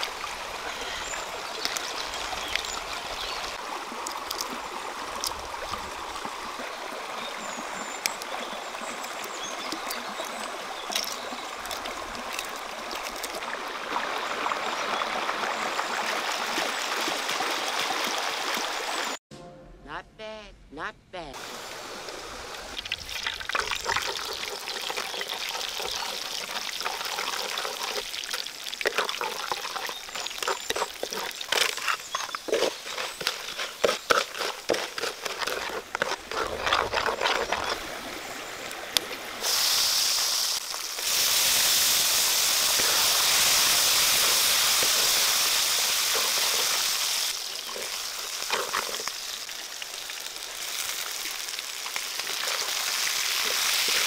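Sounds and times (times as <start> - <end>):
spatula scraping a pan: 28.8 - 37.8
oil sizzling in a wok: 39.4 - 54.0.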